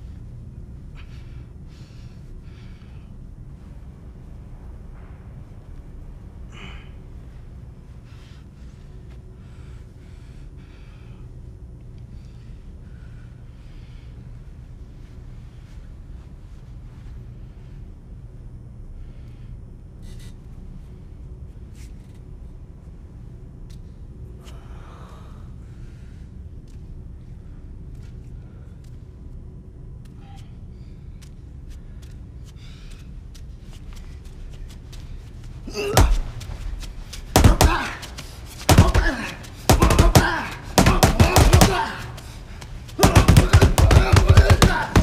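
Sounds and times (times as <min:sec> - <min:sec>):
low rumbling drone: 0:00.0 - 0:20.0
fists punching concrete wall: 0:35.7 - 0:45.0
man's strained cry: 0:37.4 - 0:38.1, 0:38.7 - 0:42.4, 0:43.0 - 0:45.0.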